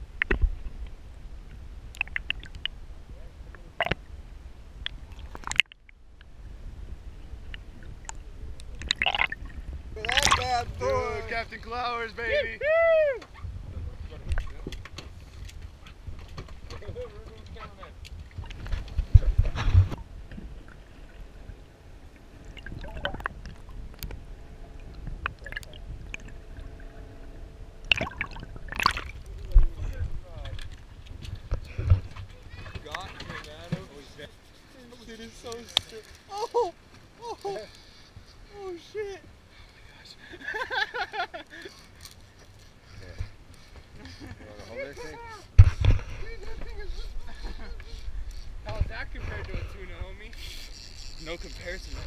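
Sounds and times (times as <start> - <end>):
underwater rumble of water: 0.0 - 11.8, 13.4 - 34.2
sharp underwater clicks: 0.1 - 0.6, 1.9 - 2.8, 3.5 - 4.0, 4.8 - 6.3, 7.5 - 10.4, 24.9 - 26.4, 27.8 - 29.6.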